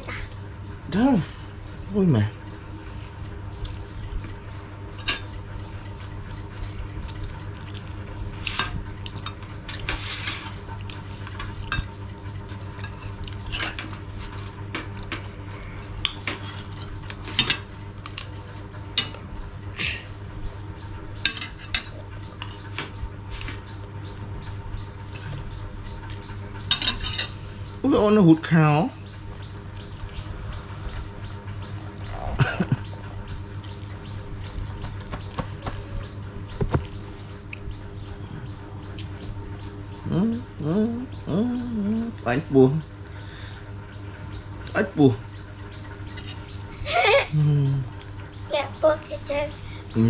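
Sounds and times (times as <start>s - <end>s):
low hum: 0.0s - 50.0s
cutlery clinking on plates: 26.7s - 27.3s.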